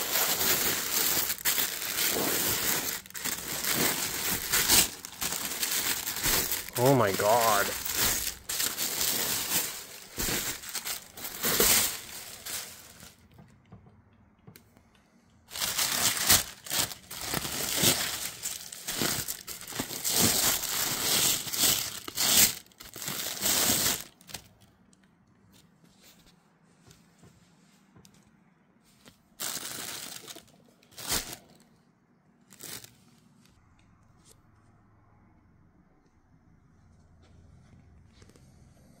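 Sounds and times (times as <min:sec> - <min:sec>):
paper crinkling: 0:00.0 - 0:13.2, 0:15.5 - 0:24.5.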